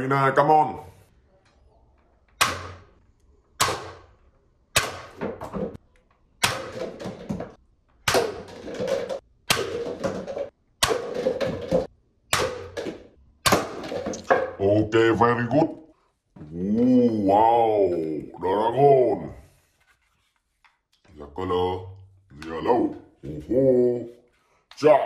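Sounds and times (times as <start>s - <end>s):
paper cups tumbling: 8.3s - 11.9s.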